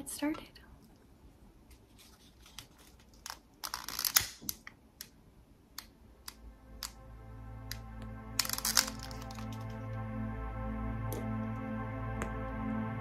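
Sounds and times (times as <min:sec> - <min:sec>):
soft background music: 0:06.2 - 0:13.0.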